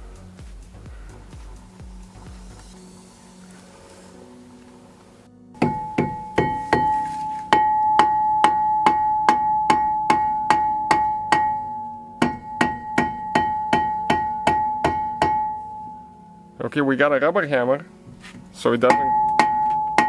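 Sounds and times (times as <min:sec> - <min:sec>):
mallet striking ringing brake disc: 0:05.6 - 0:16.2, 0:18.9 - 0:20.0.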